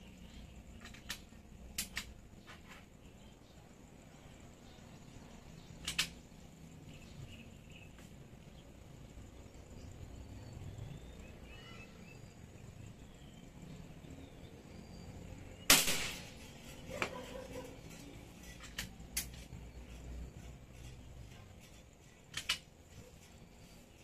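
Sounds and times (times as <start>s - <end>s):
rifle shot: 15.7s - 16.5s.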